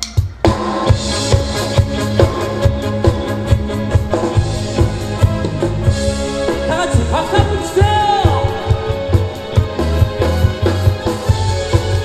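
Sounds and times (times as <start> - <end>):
drum kit beat: 0.0 - 12.0
rock band playing: 0.0 - 12.0
man singing into a microphone: 6.7 - 9.0.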